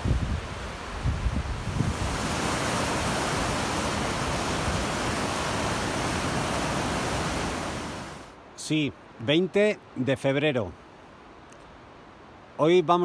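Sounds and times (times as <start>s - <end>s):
wind buffeting microphone: 0.0s - 8.2s
river rushing: 0.0s - 10.1s.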